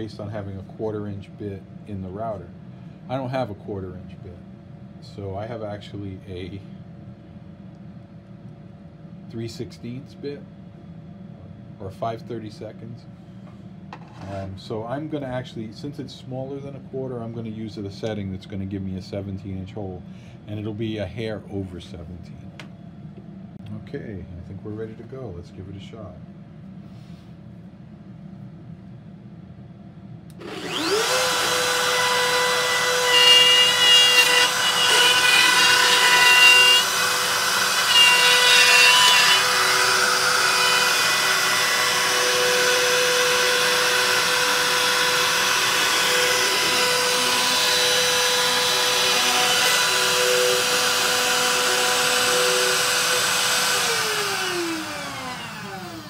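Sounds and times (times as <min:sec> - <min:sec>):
router whining: 0:30.3 - 0:56.0
router cutting wood: 0:30.4 - 0:56.0.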